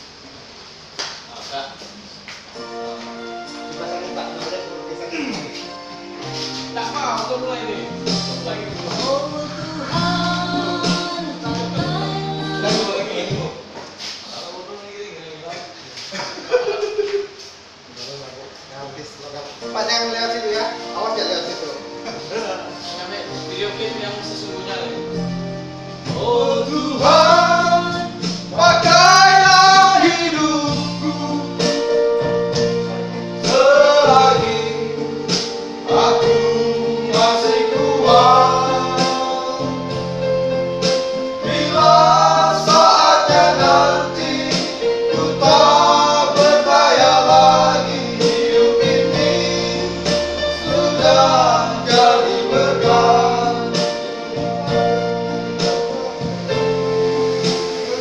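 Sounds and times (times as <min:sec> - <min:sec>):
men singing together: 0:08.0 - 0:13.6, 0:26.0 - 0:58.0.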